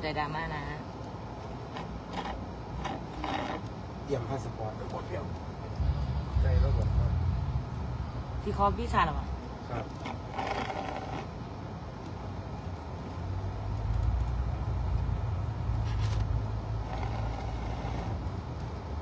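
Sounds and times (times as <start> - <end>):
vehicle cabin rumble: 1.7 - 11.5.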